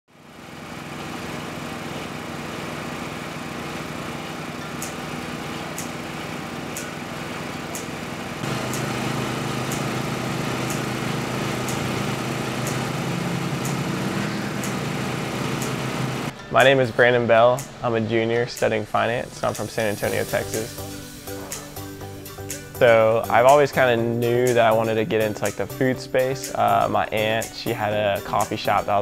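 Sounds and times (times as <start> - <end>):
portable generator running: 0.1 - 16.7, 19.0 - 25.8.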